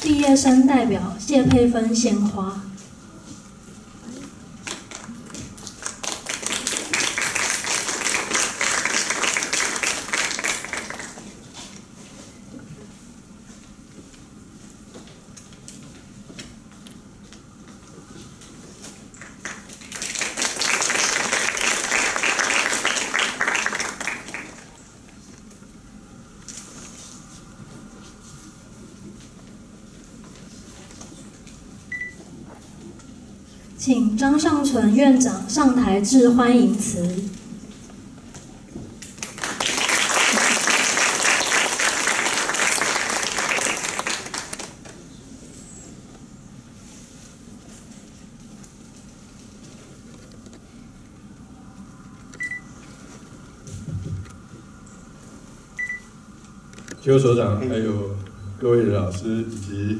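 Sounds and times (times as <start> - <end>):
audience applauding: 4.7 - 11.4, 19.2 - 24.8, 39.2 - 44.8.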